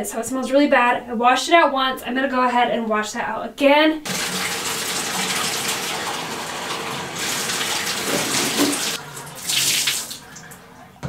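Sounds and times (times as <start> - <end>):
water splashing into plastic can: 4.1 - 10.3
water running in a bathtub: 4.1 - 10.8.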